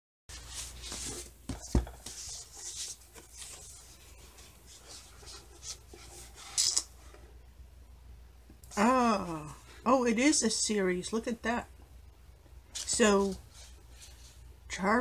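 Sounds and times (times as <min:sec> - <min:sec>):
paper dust jacket rustling: 0:00.3 - 0:06.7.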